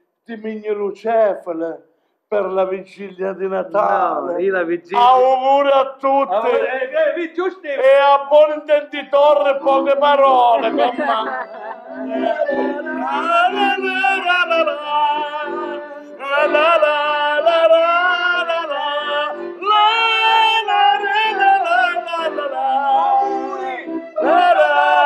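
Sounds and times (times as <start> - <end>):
accordion chords: 2.4 - 25.0
men and women singing: 10.6 - 25.0.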